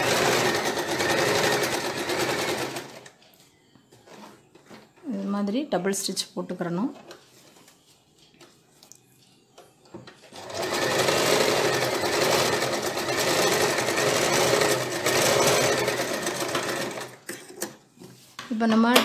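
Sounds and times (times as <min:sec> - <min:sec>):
sewing machine stitching: 0:00.0 - 0:03.1, 0:10.3 - 0:17.6.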